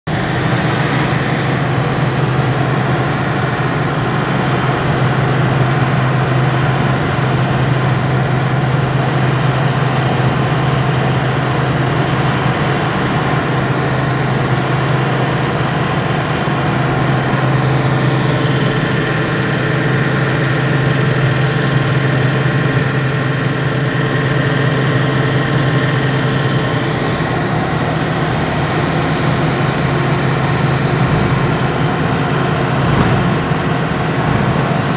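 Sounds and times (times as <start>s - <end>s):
vehicle engine hum: 0.1s - 34.9s
road noise: 25.6s - 34.9s.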